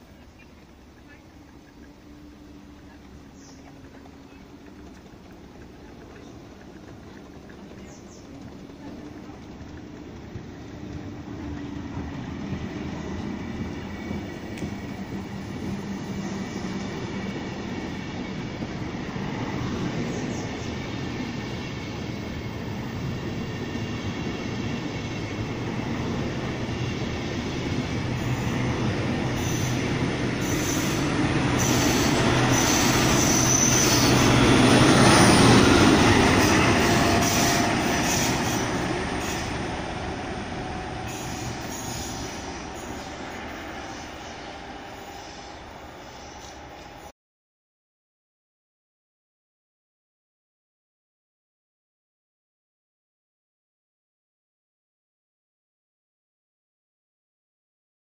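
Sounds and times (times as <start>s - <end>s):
diesel locomotive passing: 0.0s - 47.1s
train wheels on rails: 0.0s - 47.1s
high wheel squeals: 28.2s - 39.9s, 40.8s - 47.1s.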